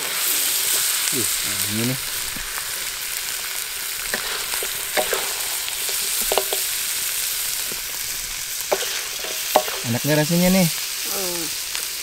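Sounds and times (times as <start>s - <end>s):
steady hiss: 0.0s - 12.0s
spoon scraping and knocking: 4.2s - 6.7s, 8.7s - 9.9s.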